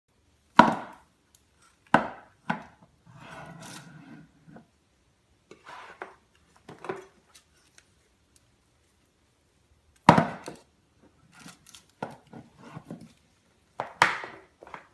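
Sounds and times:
tin scraping slide: 3.1s - 4.6s, 5.5s - 6.2s.

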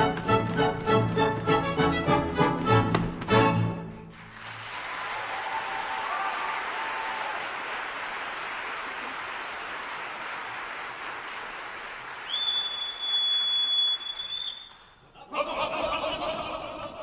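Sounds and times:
audience applauding: 4.1s - 15.0s
steady high whistle: 12.3s - 14.9s.

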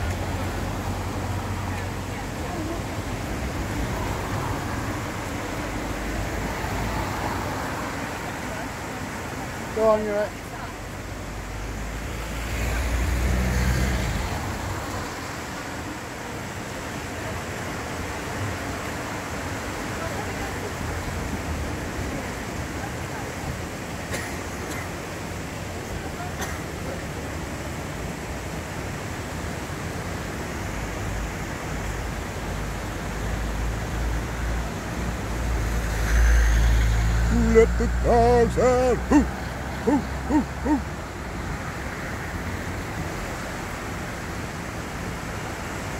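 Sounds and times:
vehicle engine hum: 0.0s - 17.5s, 27.2s - 45.9s
vehicles driving past: 0.0s - 45.9s.

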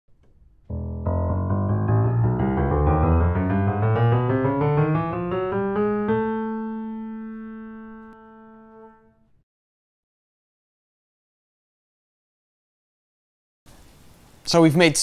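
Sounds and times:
intro music rising notes: 0.7s - 9.1s
held chord ringing: 0.7s - 9.2s.

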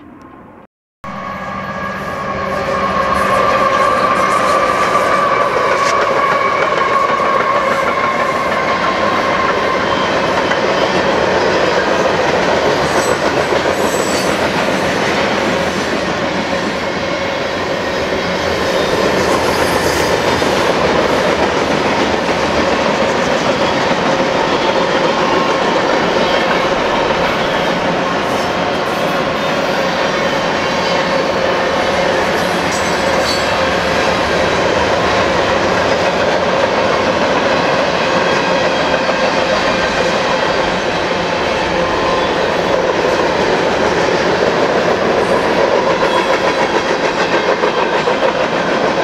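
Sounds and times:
high-pitched wheel squeal: 1.1s - 11.2s, 12.8s - 14.4s, 26.0s - 33.7s
train wheels clattering over rail: 3.4s - 49.0s.

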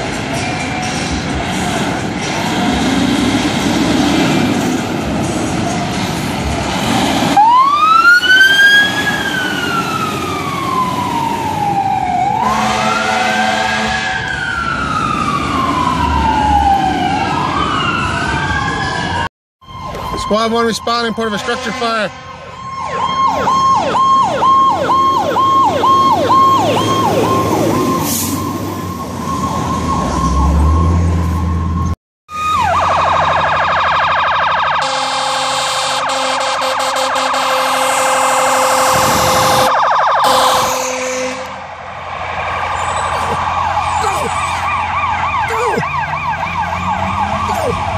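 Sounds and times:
fire truck siren yelping: 7.2s - 21.5s, 22.3s - 47.9s
steady horn-like siren tone: 7.4s - 41.8s, 42.4s - 47.9s.

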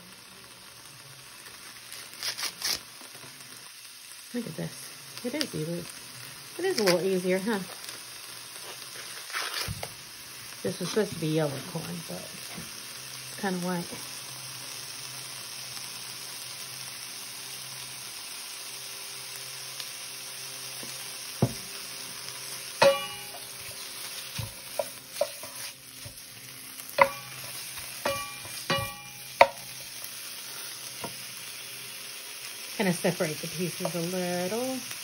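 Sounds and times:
bacon sizzling in a skillet: 0.0s - 35.0s
wooden spatula knocking and scraping pan: 21.4s - 21.7s, 22.8s - 26.2s, 27.0s - 29.8s.

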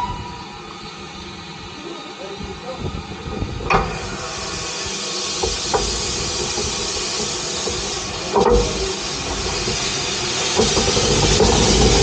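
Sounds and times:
steam locomotive hissing: 0.0s - 12.0s
metallic clanks: 3.7s - 12.0s.

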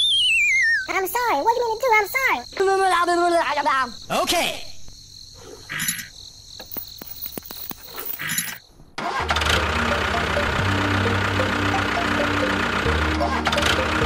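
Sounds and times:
tractor engine sound: 7.0s - 14.0s.

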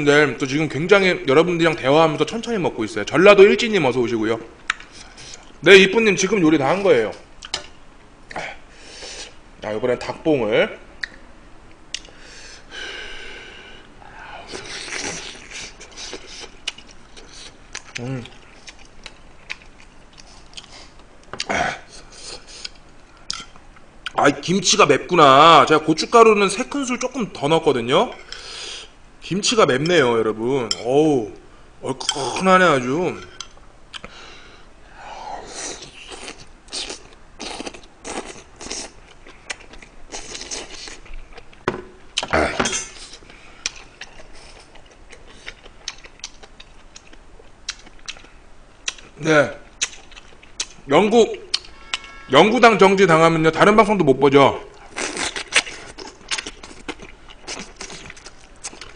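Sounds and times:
man chewing food: 14.4s - 24.2s, 33.4s - 34.2s, 35.5s - 49.2s, 49.8s - 50.8s, 54.8s - 58.9s
wet chewing and lip-smacking: 43.0s - 49.1s, 49.8s - 50.8s.

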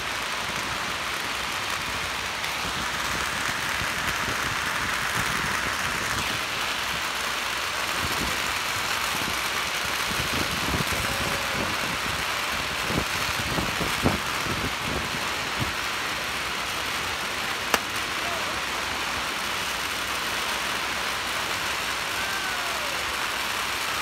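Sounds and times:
firecrackers crackling: 0.0s - 24.0s
sharp firecracker bangs: 17.4s - 19.2s.

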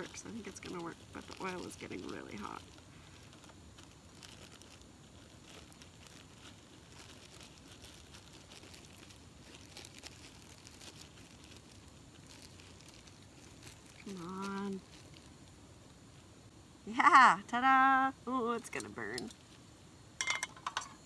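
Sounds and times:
plastic bag crinkling: 0.0s - 15.6s.

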